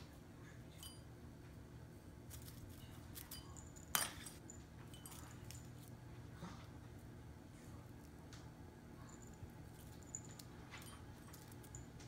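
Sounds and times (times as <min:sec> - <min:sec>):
light metallic clinks: 0:00.8 - 0:01.1, 0:03.1 - 0:05.9, 0:09.1 - 0:12.0.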